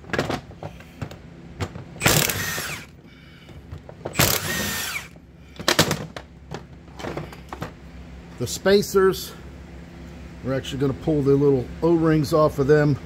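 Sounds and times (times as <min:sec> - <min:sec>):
impact wrench running: 0:01.7 - 0:03.0, 0:04.1 - 0:05.2.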